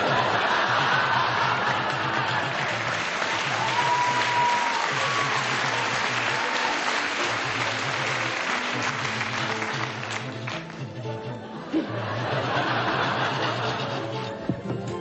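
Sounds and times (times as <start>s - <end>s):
audience applause: 0.0s - 11.0s
background music: 0.0s - 15.0s.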